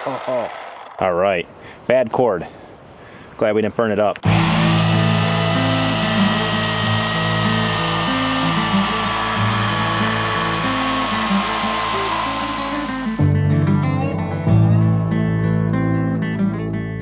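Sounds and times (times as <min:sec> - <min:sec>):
electric chainsaw cutting log: 0:00.0 - 0:01.0, 0:04.2 - 0:13.4
background music: 0:04.3 - 0:17.0.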